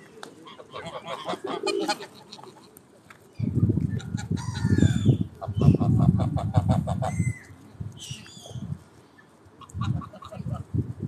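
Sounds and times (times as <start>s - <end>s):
geese gabbling: 0.4s - 2.8s, 9.6s - 10.6s.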